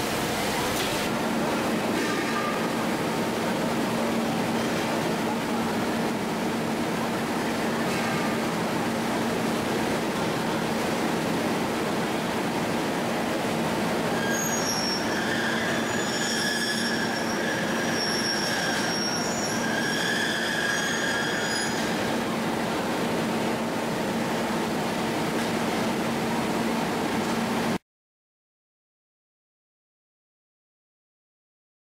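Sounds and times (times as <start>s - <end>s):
factory machinery hum: 0.0s - 27.8s
metal-on-metal squeal: 14.2s - 22.1s.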